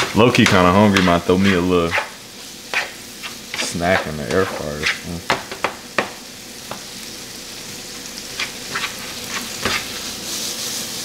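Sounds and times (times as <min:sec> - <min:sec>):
spoon scraping a skillet: 0:00.0 - 0:05.2, 0:08.3 - 0:11.0
chicken sizzling in a skillet: 0:00.0 - 0:11.0.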